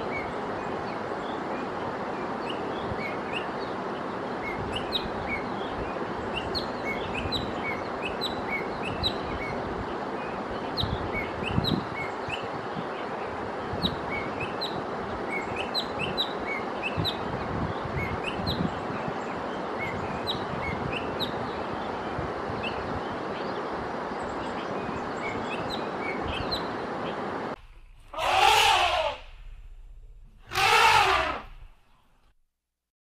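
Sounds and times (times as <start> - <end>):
birds chirping: 0.0 - 32.2
low bumps: 29.1 - 30.7.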